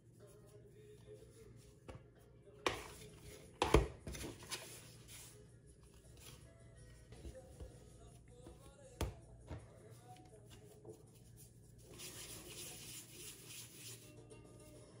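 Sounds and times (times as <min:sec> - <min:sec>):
floury hands rubbing: 0:10.5 - 0:14.1.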